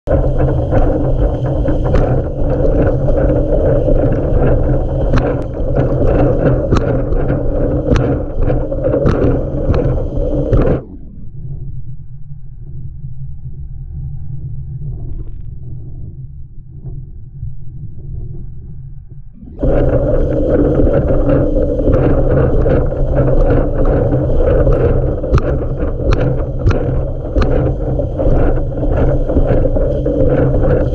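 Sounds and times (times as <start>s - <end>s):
board rushing through choppy water: 0.1s - 11.0s, 19.5s - 30.9s
wind buffeting microphone: 0.1s - 11.9s, 19.4s - 30.9s.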